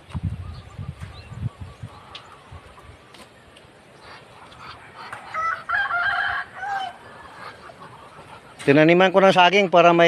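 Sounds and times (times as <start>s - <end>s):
rooster crowing: 5.3s - 7.5s.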